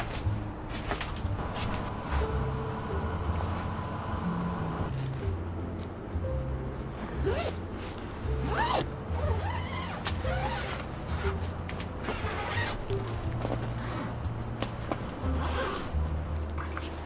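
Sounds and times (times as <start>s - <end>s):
background music with bass: 0.0s - 17.0s
zipper pulled: 7.2s - 7.6s, 8.4s - 11.4s, 12.0s - 12.9s, 15.3s - 16.0s.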